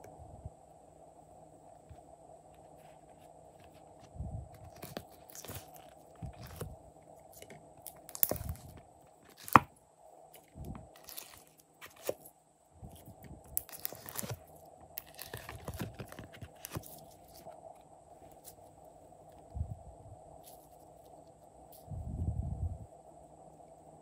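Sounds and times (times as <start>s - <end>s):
faint steady hum: 0.0s - 24.0s
sticky slime squishing: 7.9s - 9.7s.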